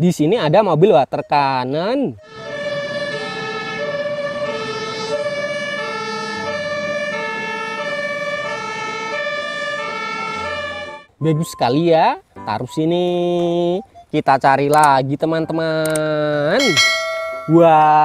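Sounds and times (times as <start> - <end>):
two-tone emergency siren: 2.2 - 11.1.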